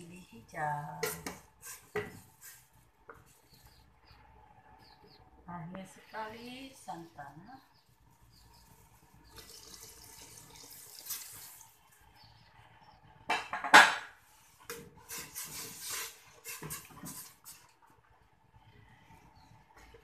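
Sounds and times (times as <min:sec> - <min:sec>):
liquid splashing into a pot: 0:09.3 - 0:11.8.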